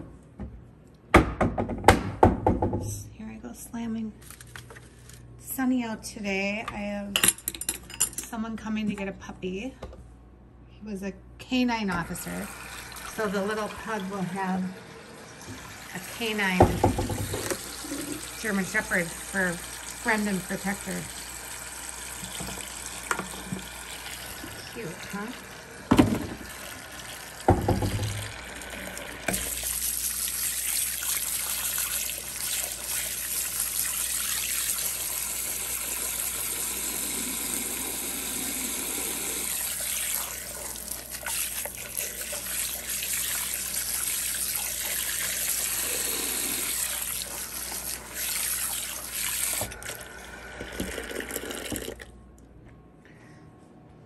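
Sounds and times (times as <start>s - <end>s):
faucet running into sink: 12.1s - 52.1s.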